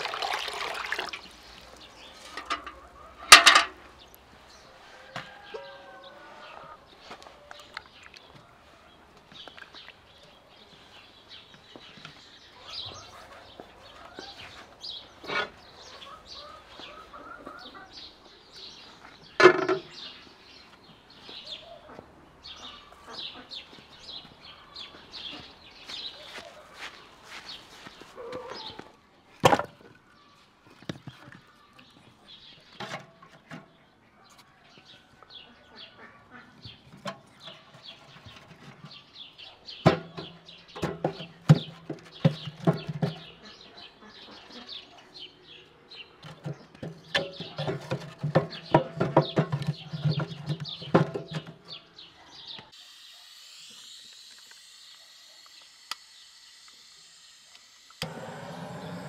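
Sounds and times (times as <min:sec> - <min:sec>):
small birds chirping: 0:01.3 - 0:29.0, 0:30.0 - 0:53.2
chickens clucking: 0:01.6 - 0:09.4, 0:12.5 - 0:20.3, 0:21.2 - 0:25.6, 0:28.0 - 0:29.0, 0:33.2 - 0:52.8
firewood knocking in metal stove: 0:46.3 - 0:51.5.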